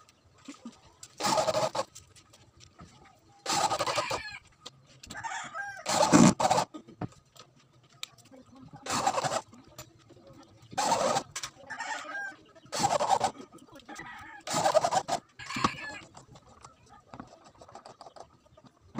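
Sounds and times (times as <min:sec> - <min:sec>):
electric drill driving screws: 0:01.2 - 0:01.9, 0:03.5 - 0:04.2, 0:05.9 - 0:06.7, 0:08.9 - 0:09.5, 0:10.8 - 0:11.4, 0:12.7 - 0:13.3, 0:14.5 - 0:15.8.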